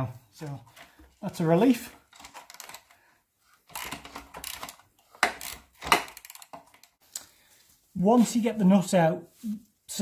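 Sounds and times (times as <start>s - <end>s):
hand tools scraping and clicking: 1.8s - 7.3s.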